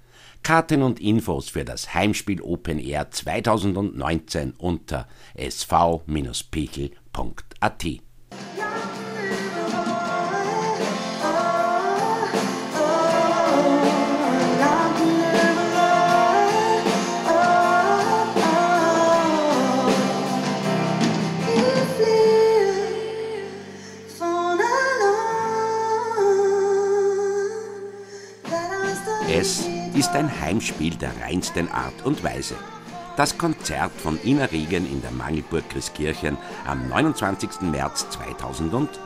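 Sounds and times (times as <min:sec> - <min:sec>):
drum kit: 0:08.3 - 0:22.8, 0:28.4 - 0:39.0
stage piano: 0:08.3 - 0:27.8, 0:28.4 - 0:39.0
woman singing: 0:08.4 - 0:39.0.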